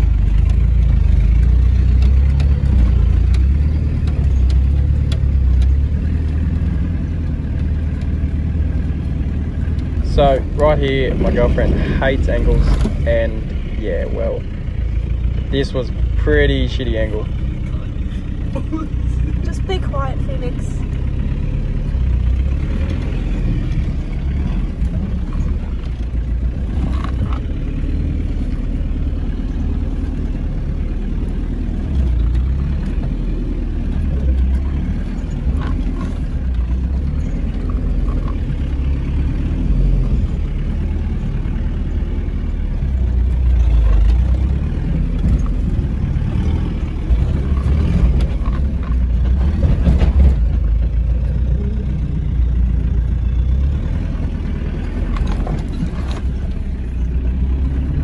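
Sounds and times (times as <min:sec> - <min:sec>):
diesel engine rumbling: 0:00.0 - 0:58.0
vehicle knocks and rattles: 0:47.0 - 0:51.4.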